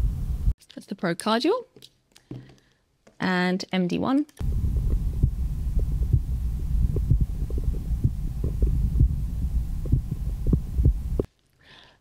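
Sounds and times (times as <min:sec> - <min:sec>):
heartbeat thuds: 0:04.4 - 0:11.3
low rumble: 0:04.4 - 0:11.3.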